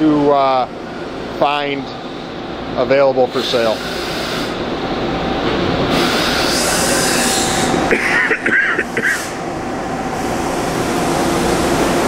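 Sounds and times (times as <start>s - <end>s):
machining center humming: 0.0s - 12.0s
hiss: 5.9s - 7.8s.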